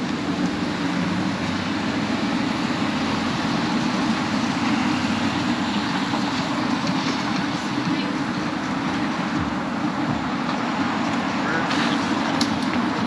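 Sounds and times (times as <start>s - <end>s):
city street traffic: 0.0s - 13.0s
low engine hum: 0.0s - 13.0s.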